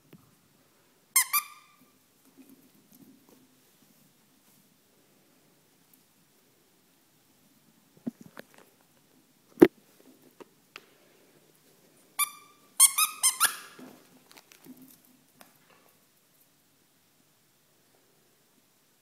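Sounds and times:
dog toy squeaker squeaking: 1.2 - 1.8, 12.2 - 13.8.

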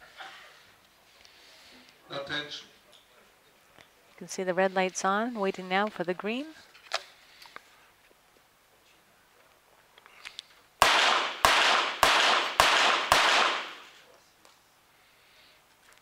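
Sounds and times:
pistol shots echoing indoors: 10.8 - 14.0.

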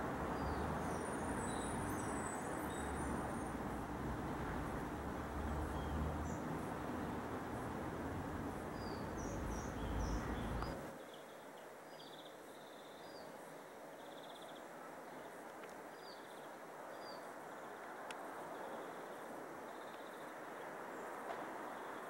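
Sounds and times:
birds chirping and trilling: 8.8 - 11.3.

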